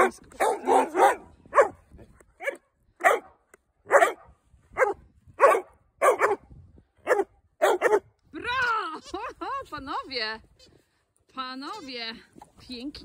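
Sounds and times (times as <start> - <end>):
dog barking: 0.0 - 1.8, 2.4 - 6.4, 7.0 - 8.1.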